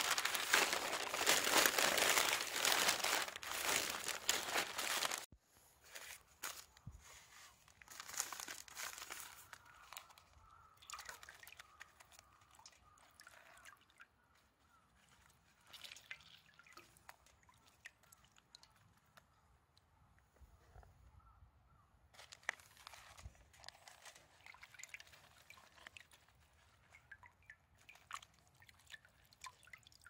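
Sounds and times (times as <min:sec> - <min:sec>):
water splashing and dripping: 0:00.0 - 0:05.3, 0:08.0 - 0:14.5, 0:15.1 - 0:19.2, 0:24.3 - 0:30.0
wet newspaper crinkling: 0:00.0 - 0:05.3, 0:07.6 - 0:12.5, 0:22.2 - 0:27.2.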